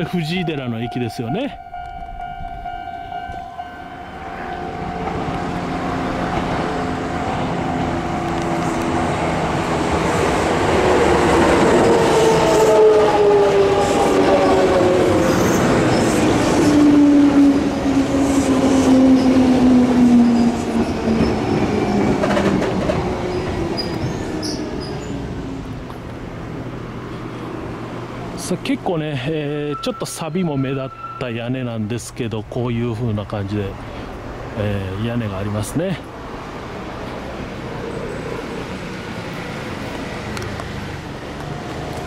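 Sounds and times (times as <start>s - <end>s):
level crossing bell ringing: 0.0s - 5.2s, 29.4s - 31.6s
train wheels rumbling on rails: 0.0s - 30.0s.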